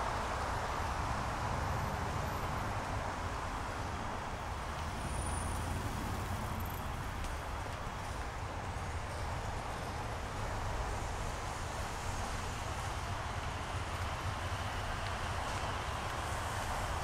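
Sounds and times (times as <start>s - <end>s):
city road traffic rumble: 0.0s - 17.0s.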